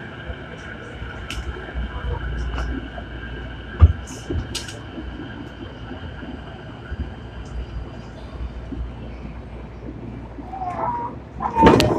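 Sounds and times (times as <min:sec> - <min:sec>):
train wheels rumbling on rails: 0:00.0 - 0:11.9.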